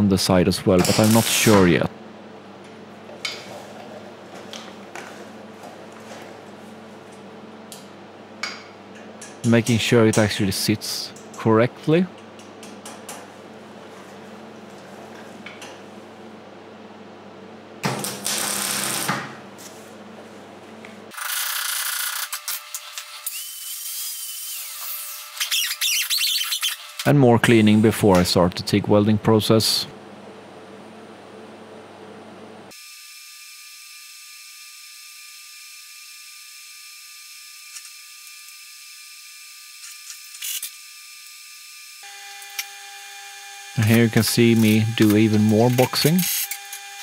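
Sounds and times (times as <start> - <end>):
low shop hum: 0.0 - 47.0
welding arc crackling and buzzing: 0.8 - 1.8, 17.8 - 19.4, 32.7 - 47.0
welding arc hissing: 0.9 - 1.6, 17.9 - 19.2.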